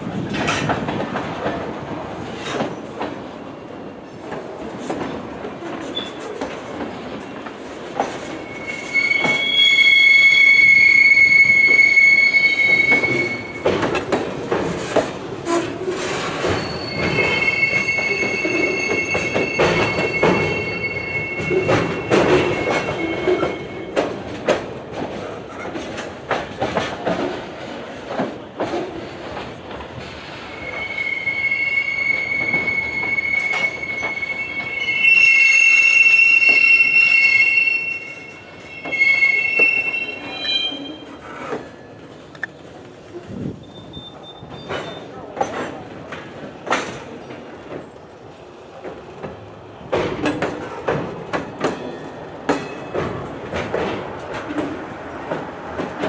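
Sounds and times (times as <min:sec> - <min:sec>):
train wheels squealing on rails: 0:04.8 - 0:24.6, 0:29.0 - 0:45.9, 0:50.0 - 0:56.0.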